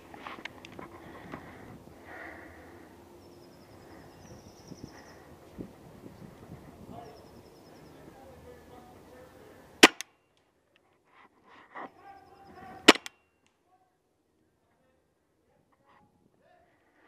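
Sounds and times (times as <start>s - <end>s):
paintball marker shots: 9.8s - 10.2s, 12.8s - 13.2s.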